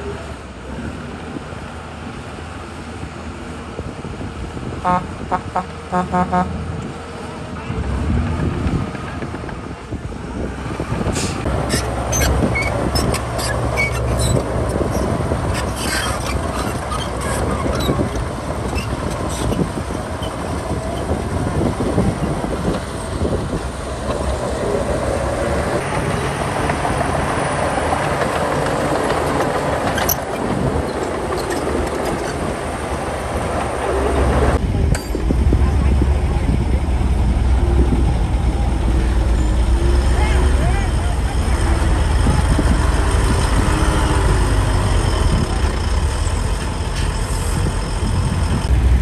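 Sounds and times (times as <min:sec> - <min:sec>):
diesel engine running under load: 0:00.0 - 0:49.0
steel tracks clattering: 0:08.2 - 0:49.0
sharp metallic clanks: 0:34.9 - 0:35.4.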